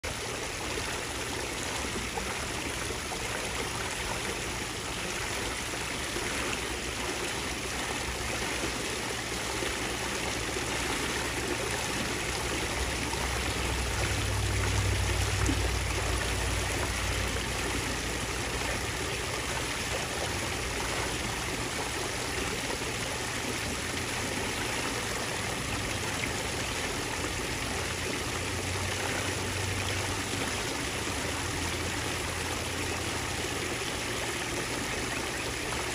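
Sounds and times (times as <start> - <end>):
water trickling in pool: 0.0 - 35.9.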